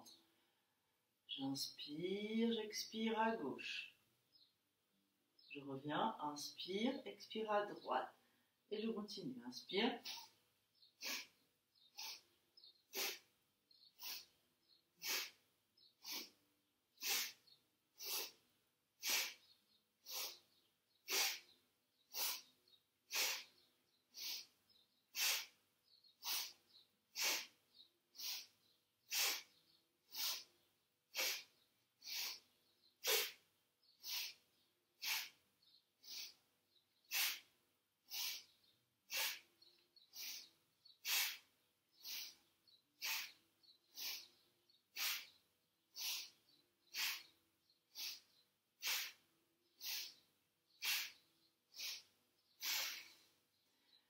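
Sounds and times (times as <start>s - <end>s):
person breathing forcefully through nose: 11.0s - 12.3s, 12.9s - 13.3s, 13.9s - 14.4s, 15.0s - 15.4s, 16.0s - 16.4s, 17.0s - 36.5s, 37.1s - 53.4s.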